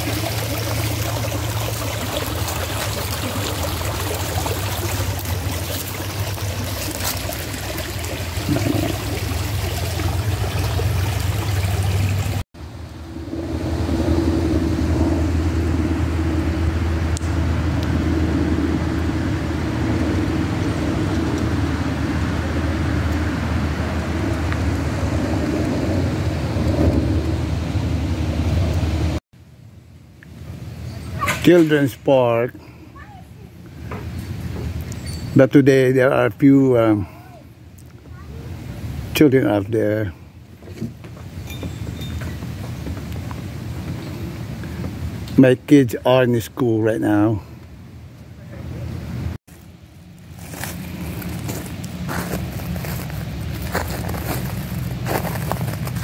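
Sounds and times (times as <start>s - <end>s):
small stream running: 0.0s - 12.5s, 30.6s - 47.6s, 48.2s - 56.0s
steady low rumble: 0.0s - 30.8s, 47.6s - 56.0s.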